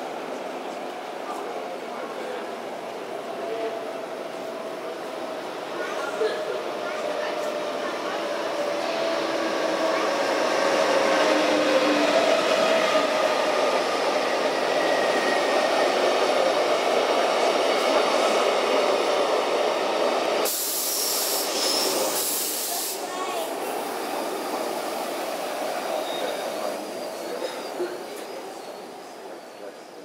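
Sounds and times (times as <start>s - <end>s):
train coaches rolling: 4.4s - 30.0s
sudden hiss: 20.4s - 24.3s
wheel and brake squealing: 26.0s - 29.8s.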